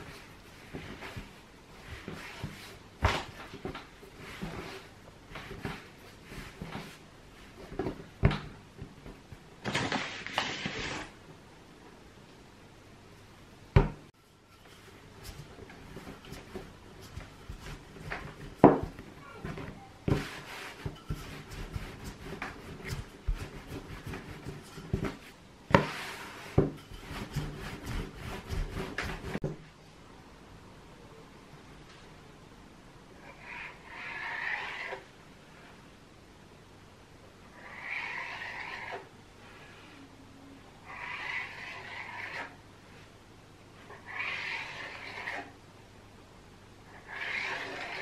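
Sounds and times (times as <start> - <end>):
hands kneading dough: 0.0 - 11.1, 14.6 - 29.4.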